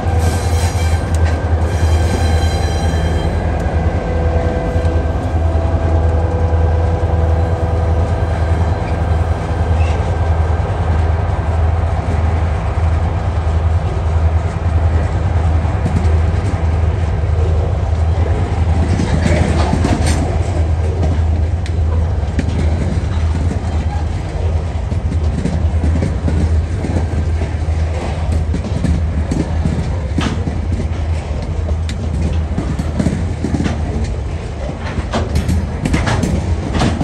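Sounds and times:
diesel locomotive engines humming: 0.0s - 37.0s
train wagons rumbling: 0.0s - 37.0s
metallic clanks and squeals: 0.2s - 3.4s.

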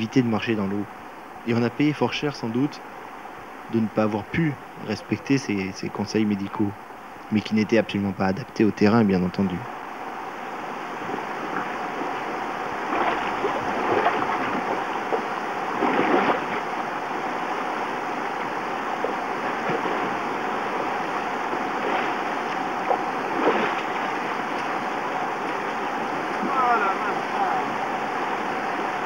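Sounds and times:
rushing stream rapids: 0.0s - 29.0s
people wading splashes: 11.0s - 17.4s, 18.4s - 28.5s.

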